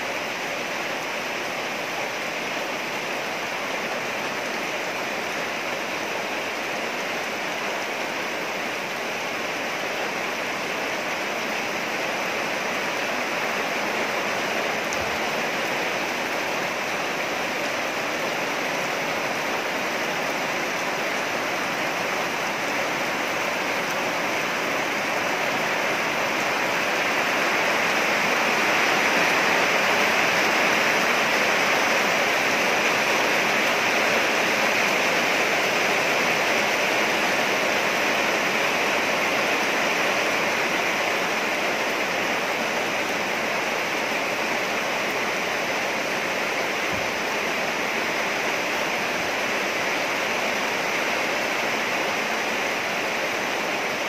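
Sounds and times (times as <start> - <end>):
rain falling on grass and leaves: 0.0 - 54.0.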